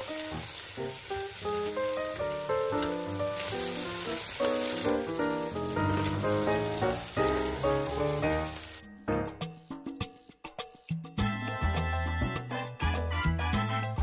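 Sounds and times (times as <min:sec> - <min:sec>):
food sizzling in oil: 0:00.0 - 0:09.0
background music: 0:01.4 - 0:14.0.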